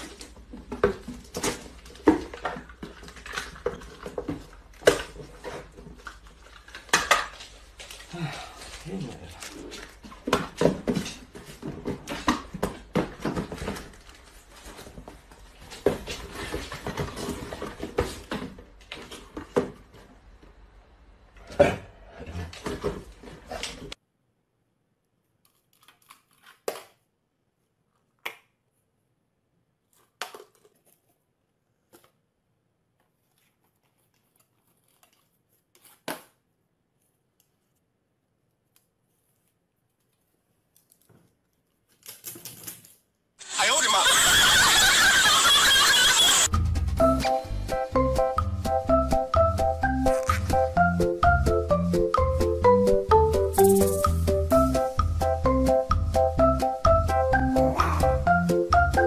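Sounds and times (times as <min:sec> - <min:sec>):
cardboard boxes rustling and scraping: 0:09.7 - 0:19.8.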